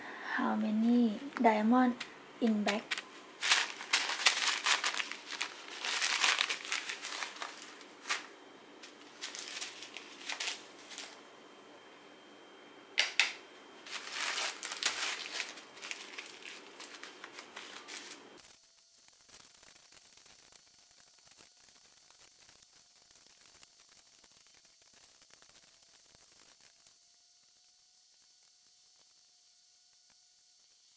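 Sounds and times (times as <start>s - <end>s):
plastic bags crinkling: 1.9s - 11.2s, 13.8s - 18.4s.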